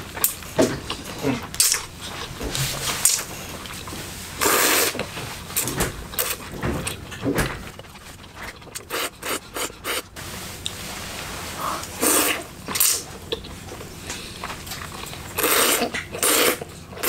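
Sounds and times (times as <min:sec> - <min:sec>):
person slurping noodles: 0:04.4 - 0:05.0, 0:08.8 - 0:10.0, 0:11.6 - 0:13.0, 0:15.4 - 0:16.7.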